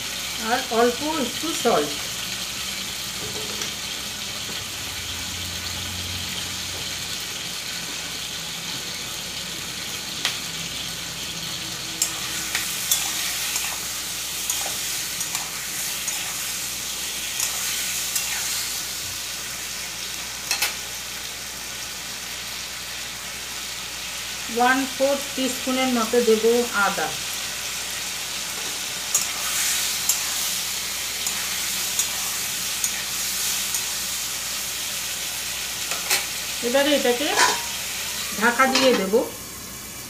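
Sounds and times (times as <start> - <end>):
tomatoes sizzling in oil: 0.0 - 40.0
spatula clinking and scraping: 12.0 - 18.7, 28.6 - 30.5, 31.2 - 34.0, 37.2 - 39.2.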